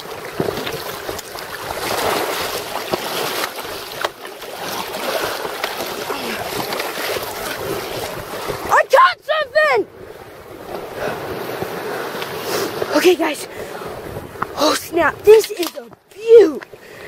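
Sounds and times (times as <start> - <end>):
waves washing against rocky shore: 0.0 - 16.8
wind buffeting microphone: 5.0 - 16.8.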